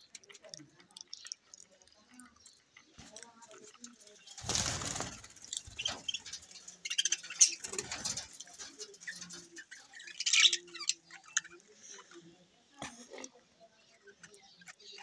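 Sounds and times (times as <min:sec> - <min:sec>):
budgerigars chattering and chirping: 0:03.8 - 0:12.3, 0:13.7 - 0:15.0.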